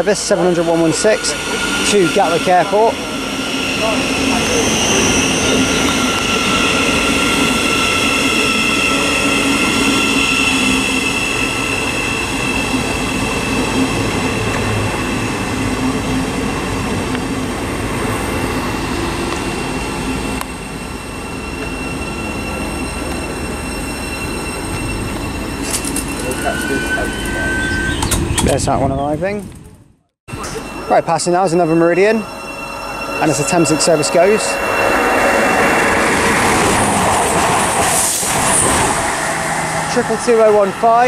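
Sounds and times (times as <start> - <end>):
electric train running: 0.0 - 28.4, 30.3 - 41.0
high whining and squealing: 0.0 - 29.2, 30.3 - 41.0.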